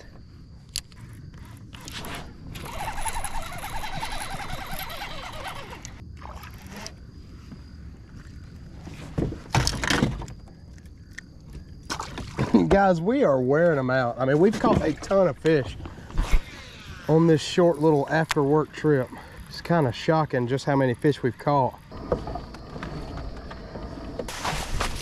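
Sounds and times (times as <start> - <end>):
fishing reel whirring: 0.9 - 6.0, 16.4 - 21.6.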